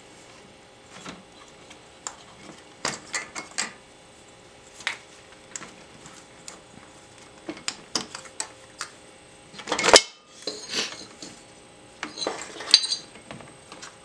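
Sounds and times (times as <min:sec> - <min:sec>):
metal tools clinking and clanking: 0:09.6 - 0:11.4, 0:12.0 - 0:13.1.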